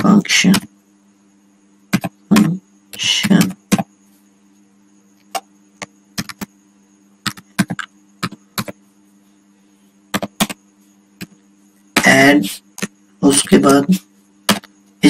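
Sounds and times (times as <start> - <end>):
person speaking: 0.0 - 0.7, 2.0 - 3.8, 12.0 - 14.6
faint steady hum: 0.0 - 15.0
keyboard typing clicks: 5.2 - 6.5, 7.2 - 8.8, 10.1 - 10.6.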